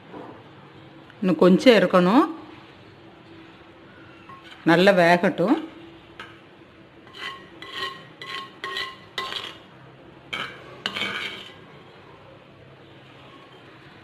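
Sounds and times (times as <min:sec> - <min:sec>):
spoon scraping clay pot: 0:04.2 - 0:04.9, 0:07.0 - 0:09.7, 0:10.4 - 0:11.8.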